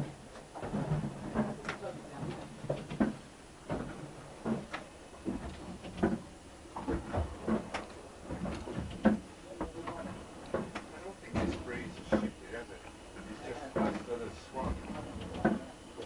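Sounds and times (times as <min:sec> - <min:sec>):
irregular knocks and thumps: 0:00.0 - 0:12.3
low background noise: 0:00.0 - 0:16.0.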